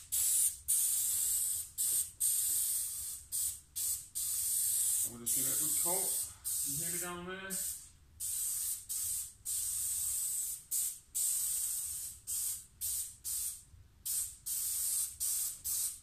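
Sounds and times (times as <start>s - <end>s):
spray gun hissing bursts: 0.0s - 16.0s.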